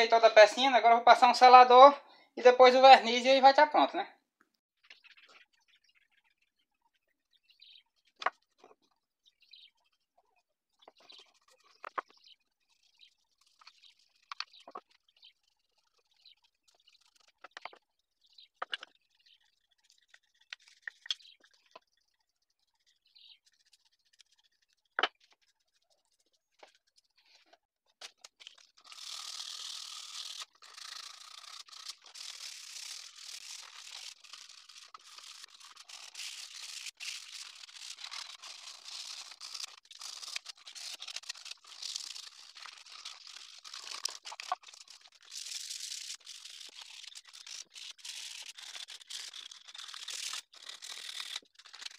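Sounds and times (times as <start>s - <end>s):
sanding on wooden box: 28.8s - 51.9s.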